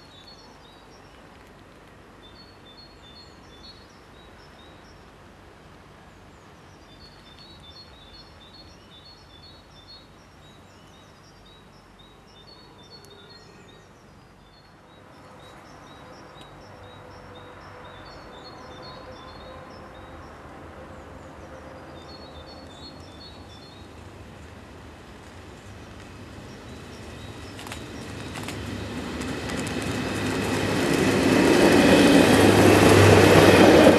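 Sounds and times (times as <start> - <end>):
outdoor noise: 0.0 - 33.9
electric train running: 26.0 - 33.9.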